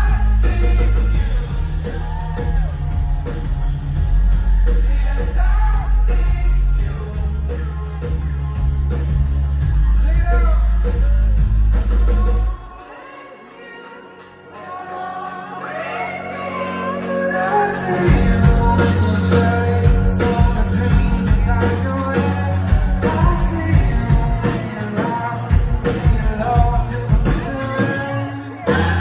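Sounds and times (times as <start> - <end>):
live rock band: 0.0 - 29.0
male lead vocals: 0.0 - 29.0.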